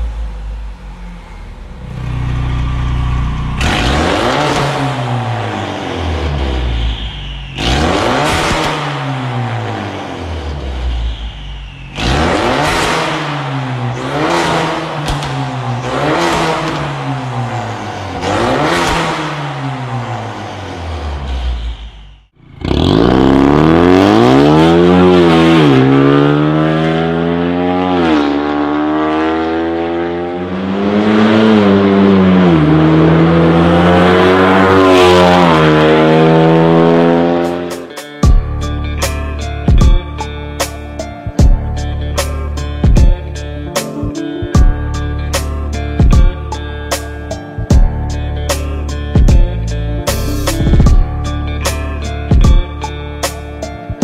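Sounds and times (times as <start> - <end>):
car engine revving: 0.0 - 40.0
car accelerating through gears: 3.6 - 6.6, 12.0 - 20.4, 22.4 - 37.8.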